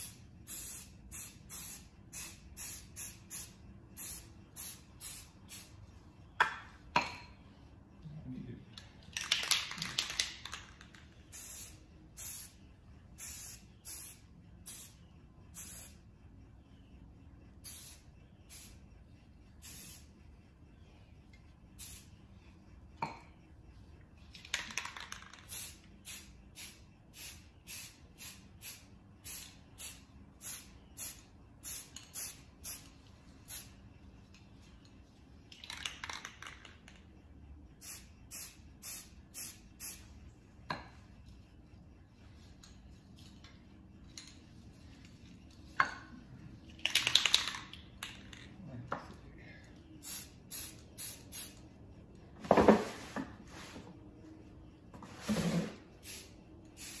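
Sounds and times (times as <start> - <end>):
aerosol spray can hissing: 19.6 - 20.1, 37.8 - 40.0, 56.0 - 57.0.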